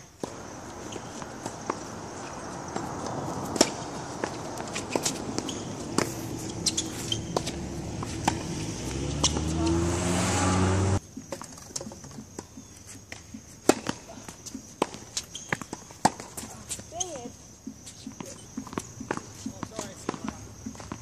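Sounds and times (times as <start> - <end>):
tennis balls struck by rackets: 0.0 - 9.9, 11.2 - 16.9, 17.6 - 21.0
footsteps: 0.0 - 10.0
balls bouncing on hard court: 0.2 - 9.9, 17.7 - 21.0
vehicle engine accelerating: 0.2 - 11.0.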